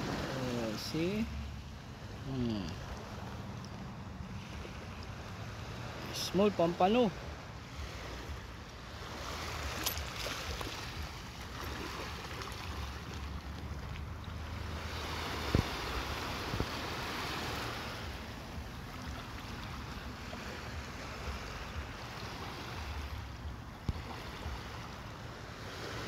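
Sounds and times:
small waves on pebbly shore: 0.0s - 26.0s
wind rumbling on microphone: 7.3s - 21.9s.

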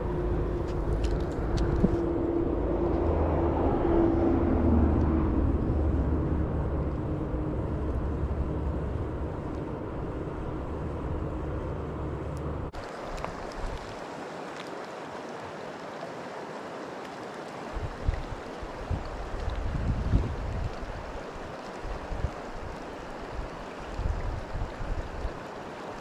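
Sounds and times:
wind rumble on microphone: 0.0s - 13.9s, 17.7s - 26.0s
river rushing over rocks: 12.7s - 26.0s.

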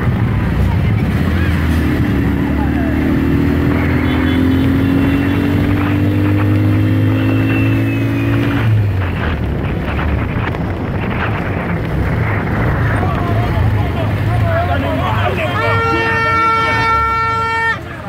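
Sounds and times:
vehicle engine accelerating: 0.0s - 15.7s
road noise: 0.0s - 18.0s
wind on microphone: 5.0s - 14.2s.

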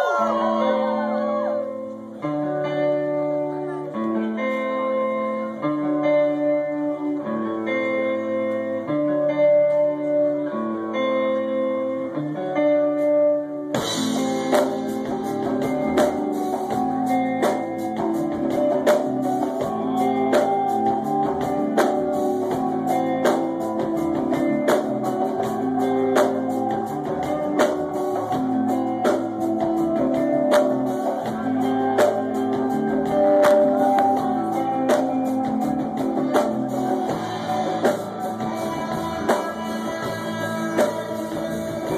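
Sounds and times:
live band playing: 0.0s - 41.9s
drums beat: 13.8s - 41.9s.

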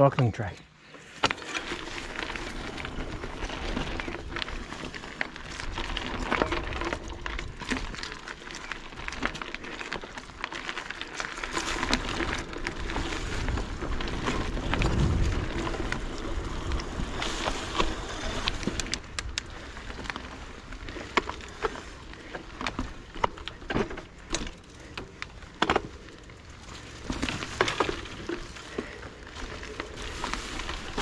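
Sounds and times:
bike tyres on gravel and sticks: 0.0s - 31.0s
bike rattling: 0.7s - 31.0s.

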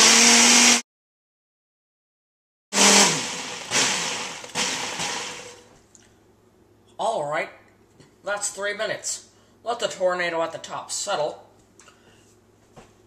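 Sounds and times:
blender motor whining: 0.0s - 0.8s, 2.7s - 5.6s.

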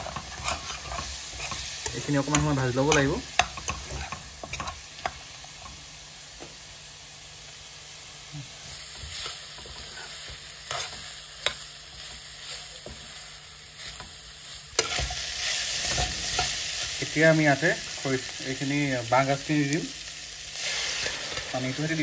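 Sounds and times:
metal spoon scraping a pan: 0.0s - 5.7s, 9.2s - 11.6s, 14.8s - 16.9s
meat sizzling in a pan: 0.0s - 22.0s.

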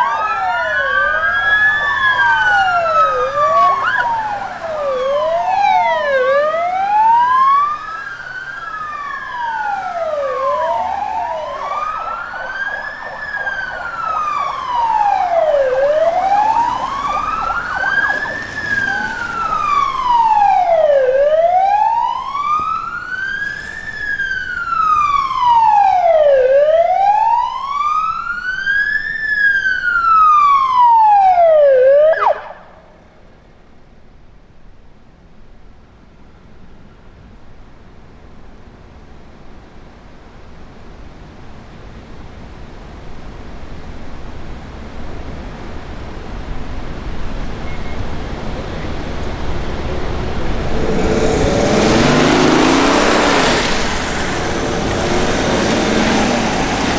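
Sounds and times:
police sirens wailing: 0.0s - 33.0s, 46.3s - 56.9s.

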